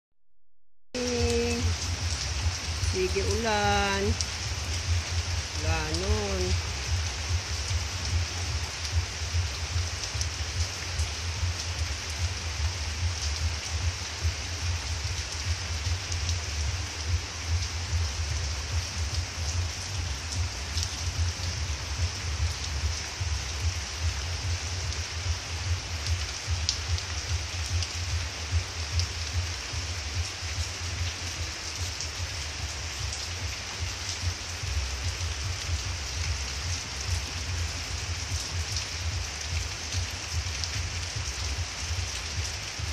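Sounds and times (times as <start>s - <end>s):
raindrop ticks: 1.0s - 42.9s
steady rain hiss: 1.0s - 42.9s.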